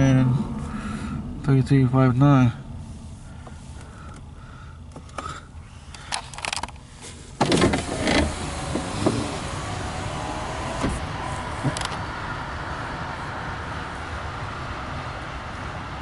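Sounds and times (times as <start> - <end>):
steady rumble: 0.0 - 16.0
power window motor running: 7.4 - 12.4.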